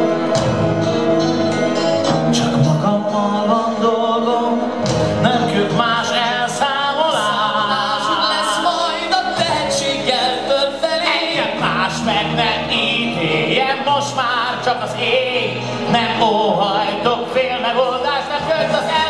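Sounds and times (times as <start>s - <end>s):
instrumental accompaniment: 0.0s - 19.0s
two men singing: 2.2s - 19.0s.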